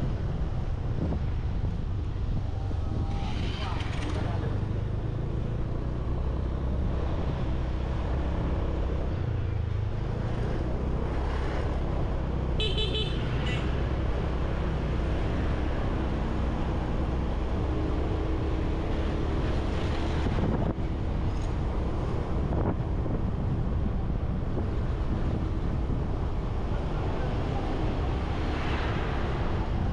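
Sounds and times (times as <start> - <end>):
road noise: 0.0 - 29.9
vehicle horn beeping: 12.6 - 13.7.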